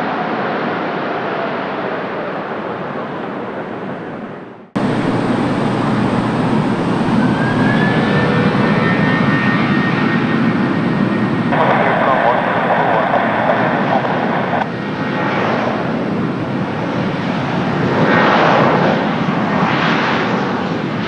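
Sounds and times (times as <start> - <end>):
jet engine noise: 0.0 - 21.0
whine rising in pitch: 4.8 - 14.7.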